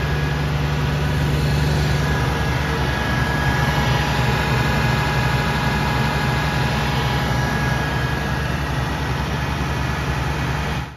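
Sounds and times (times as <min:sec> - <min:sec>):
tractor engine idling: 0:00.0 - 0:10.9.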